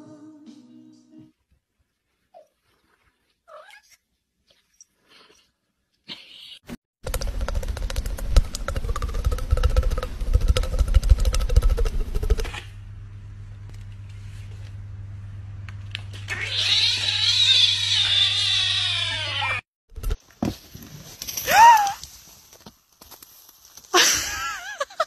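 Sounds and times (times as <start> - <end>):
rough rumble with clicks: 7.0 - 14.8
low hum: 7.0 - 16.5.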